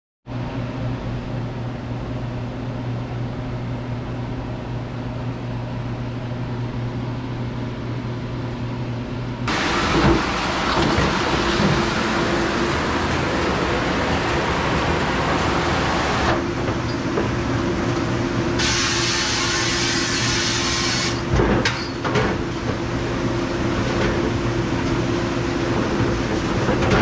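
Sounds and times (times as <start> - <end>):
dish room machinery hum: 0.3 - 27.0
hissy machine noise: 9.5 - 21.3.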